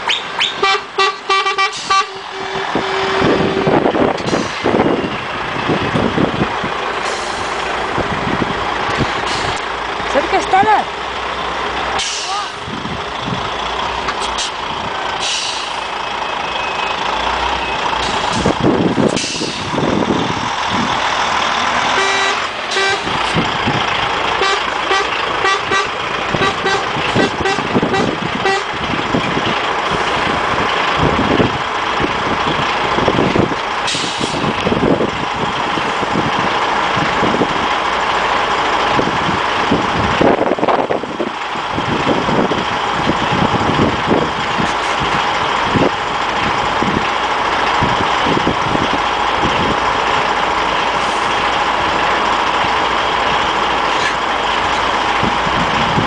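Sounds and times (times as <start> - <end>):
truck diesel engines rumbling: 0.0 - 56.0
truck horn toots: 0.1 - 4.0, 21.8 - 23.2, 24.3 - 28.8
air brakes hissing: 1.6 - 2.2, 4.2 - 5.0, 7.0 - 7.6, 9.2 - 9.6, 12.0 - 12.6, 14.2 - 14.6, 15.2 - 16.0, 18.0 - 19.8, 33.8 - 34.5.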